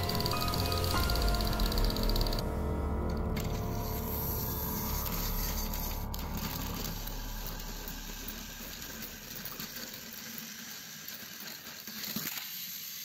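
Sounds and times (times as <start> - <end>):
toy train motors whirring: 4.3 - 13.0
wheels clattering on plastic track: 7.7 - 13.0.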